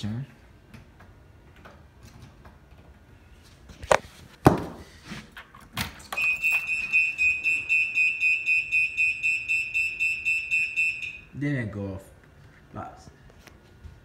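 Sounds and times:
high pulsing alarm beep: 6.1s - 11.4s.

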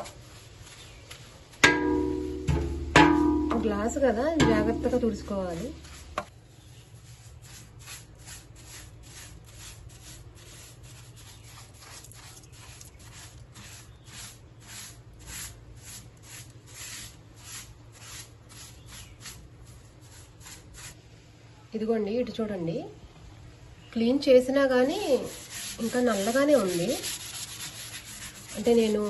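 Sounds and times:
wiping glass: 5.3s - 21.0s, 24.9s - 29.0s.

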